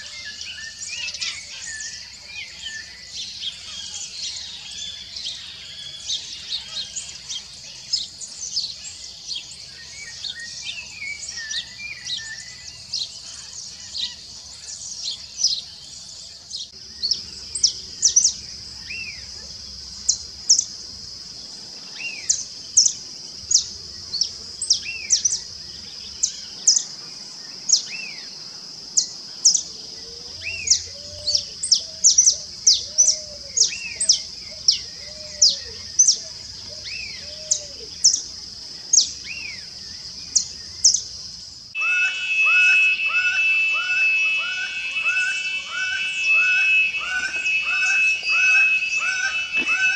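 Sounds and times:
steady high hiss: 0:37.9 - 0:49.9
falcon calling repeated notes: 0:41.8 - 0:49.9
finch singing high chips: 0:41.8 - 0:49.9.

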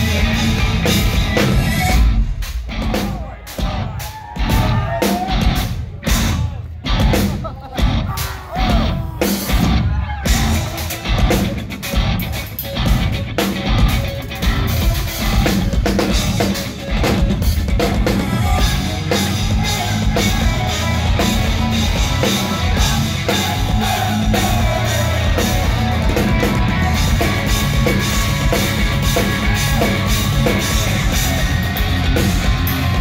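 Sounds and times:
drum kit: 0:00.0 - 0:33.0
electric guitar: 0:09.5 - 0:33.0.

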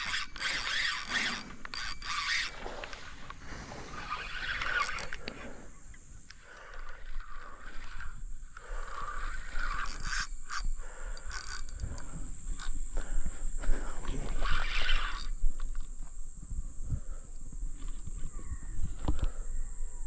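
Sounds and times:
fishing reel clicking rasp: 0:00.0 - 0:03.4, 0:04.0 - 0:16.2
high-pitched hum: 0:00.0 - 0:20.0.

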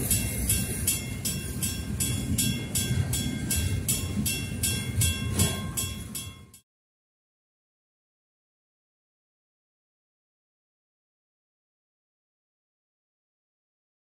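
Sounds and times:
crossing warning bell ringing: 0:00.0 - 0:06.6
freight train rumbling past: 0:00.0 - 0:06.6.

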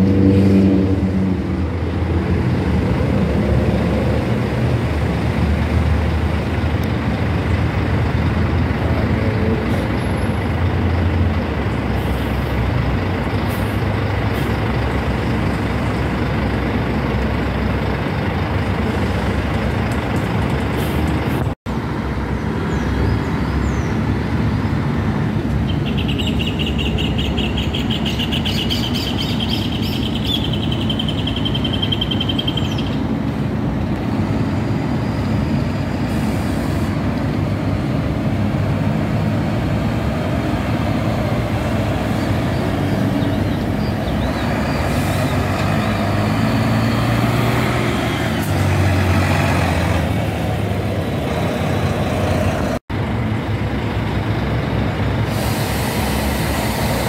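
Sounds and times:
bus engine rumble: 0:00.0 - 0:57.0
traffic noise: 0:00.0 - 0:57.0
high rapidly pulsing chirp: 0:25.6 - 0:33.1.

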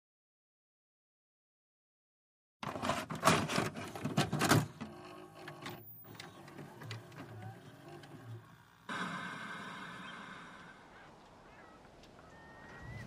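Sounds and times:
tape mechanism running: 0:02.6 - 0:10.0.

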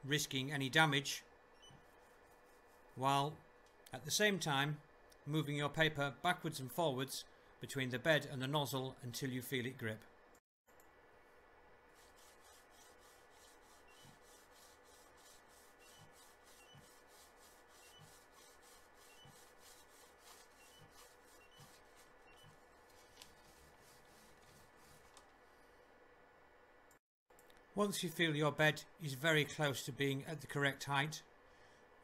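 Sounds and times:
faint steady hum: 0:00.0 - 0:32.0
paper rubbing: 0:12.0 - 0:25.7.

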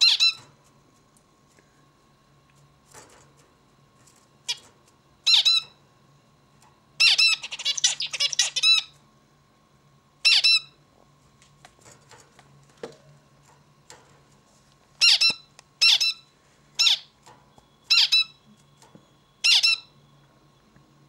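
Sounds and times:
finch calling: 0:00.0 - 0:00.4, 0:05.2 - 0:05.8, 0:07.0 - 0:08.9, 0:10.2 - 0:10.8, 0:15.0 - 0:17.1, 0:17.9 - 0:18.4, 0:19.4 - 0:19.9.

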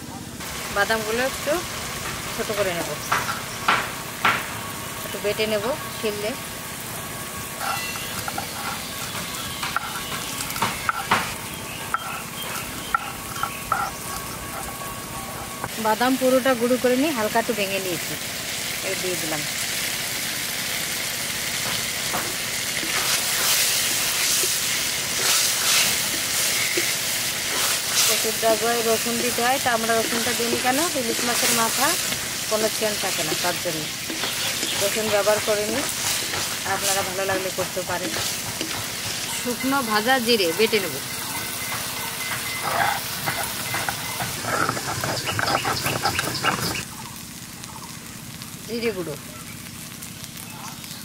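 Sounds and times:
mash sizzling in a wok: 0:00.3 - 0:51.0
wooden spatula stirring: 0:22.8 - 0:46.8
stone scraping on stone: 0:42.2 - 0:46.8.

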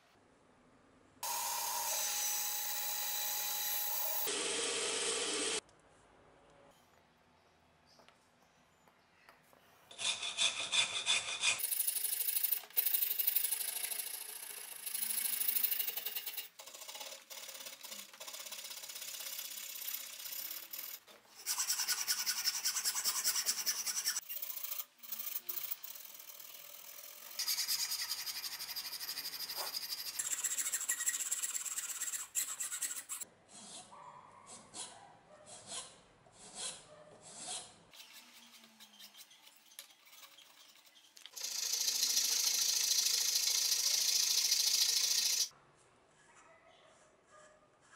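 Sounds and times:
hand file rasping wood: 0:09.9 - 0:11.6.

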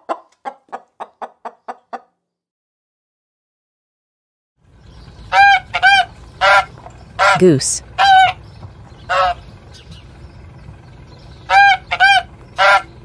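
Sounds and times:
goose honking: 0:05.3 - 0:08.4, 0:09.0 - 0:09.5, 0:11.5 - 0:12.9
low background noise: 0:06.2 - 0:08.0.

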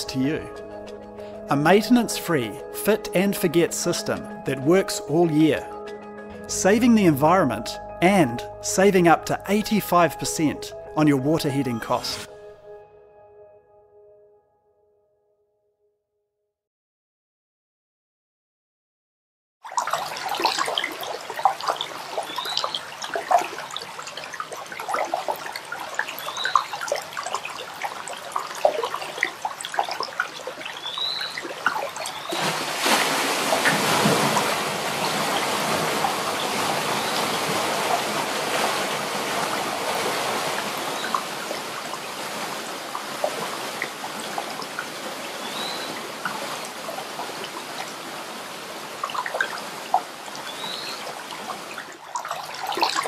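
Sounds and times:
water plinks: 0:19.6 - 0:53.0
water trickling and gurgling: 0:19.6 - 0:53.0
water rushing through turbine: 0:19.8 - 0:53.0.

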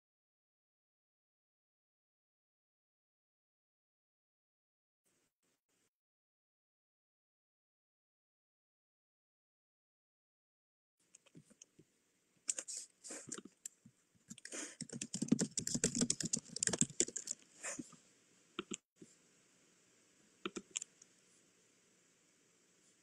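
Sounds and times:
computer keyboard typing: 0:14.3 - 0:17.4, 0:20.5 - 0:20.9.

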